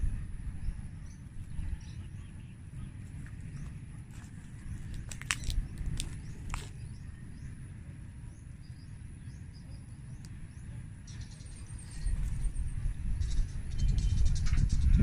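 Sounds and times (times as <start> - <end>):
wind rumbling on microphone: 0.0 - 15.0
faint high bird chirps: 8.3 - 15.0.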